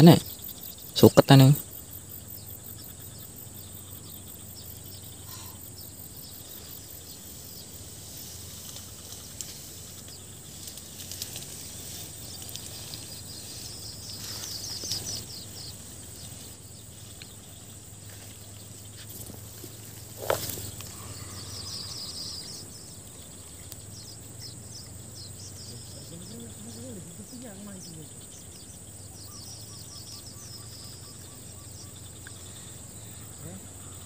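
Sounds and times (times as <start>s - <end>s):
insect chirring: 0.0s - 34.0s
faint clicks: 8.4s - 13.1s, 23.0s - 24.0s, 32.2s - 32.6s.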